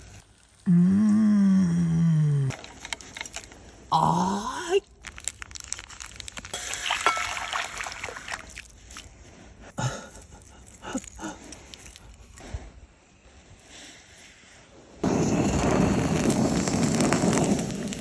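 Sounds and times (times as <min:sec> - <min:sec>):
broth pouring into a bowl: 0:06.3 - 0:08.6.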